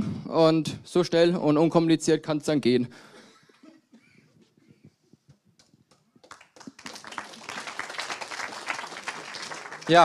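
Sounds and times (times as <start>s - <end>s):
audience applause: 6.2s - 10.0s.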